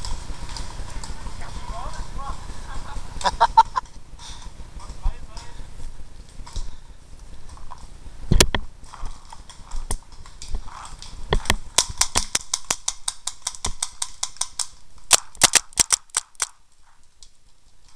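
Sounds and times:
paintball marker firing: 11.4 - 16.5.

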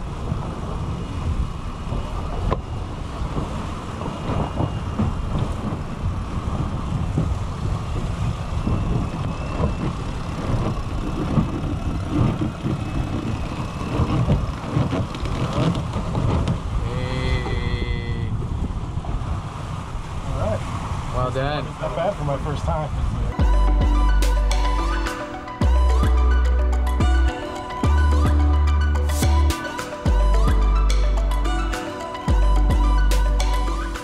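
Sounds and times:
wind buffeting microphone: 0.0 - 28.8
water rushing along hulls: 0.0 - 34.0
high squeal: 0.8 - 5.6, 7.8 - 14.7.

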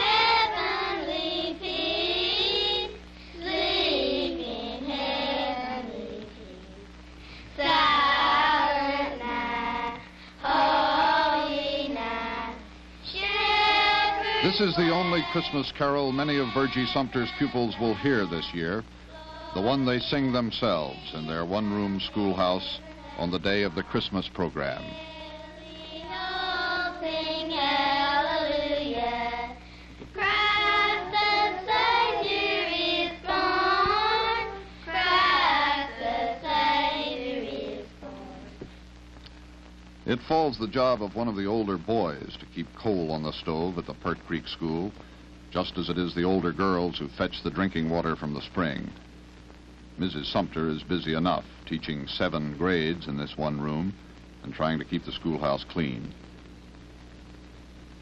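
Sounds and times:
children singing a carol: 0.0 - 6.8, 7.6 - 29.6, 30.2 - 38.6.

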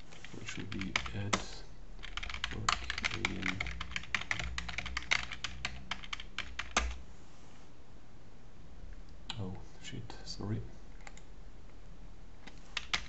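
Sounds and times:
fast keyboard typing: 0.0 - 7.0, 12.8 - 13.0.

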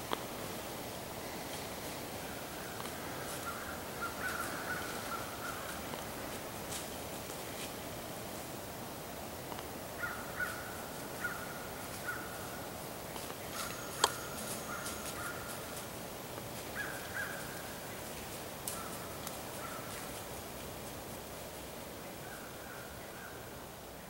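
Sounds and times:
crows cawing: 2.2 - 5.9, 10.0 - 12.6, 13.5 - 15.8, 16.7 - 17.8, 18.7 - 20.1.

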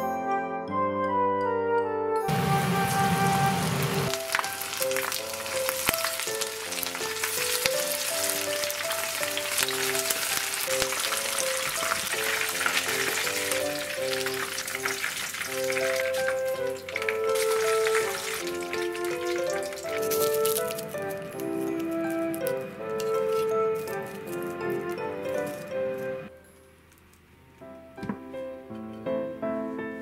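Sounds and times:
chicken frying in oil: 2.3 - 26.0.

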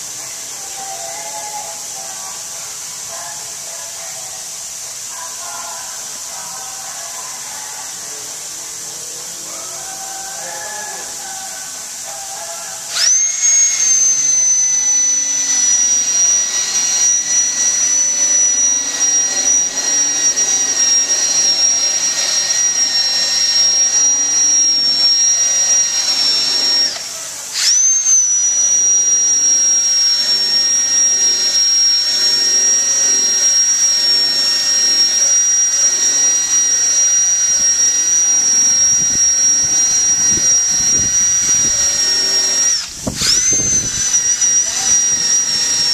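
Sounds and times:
cordless drill whining: 11.9 - 45.9.

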